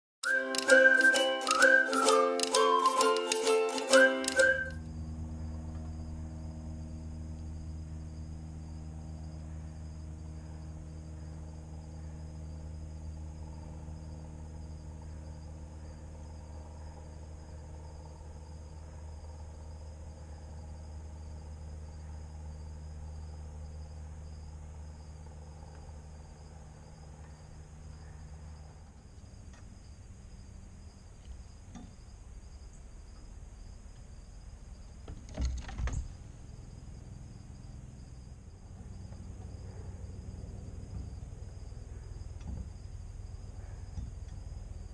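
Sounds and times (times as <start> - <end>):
crickets chirping: 0.2 - 44.9
low machine hum: 2.8 - 44.9.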